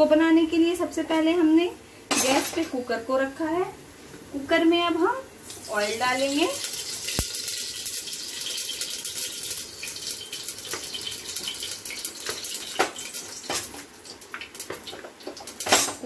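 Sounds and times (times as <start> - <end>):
oil pouring into a pot: 6.6 - 13.5.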